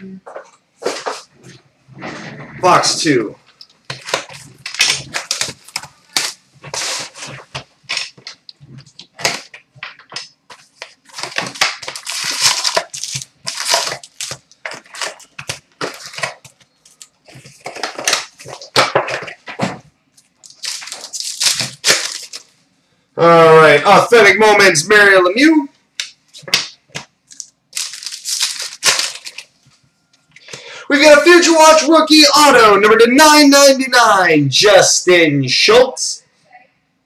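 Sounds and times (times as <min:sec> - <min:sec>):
crinkling of pack wrappers: 0:03.6 - 0:22.6, 0:27.3 - 0:29.6.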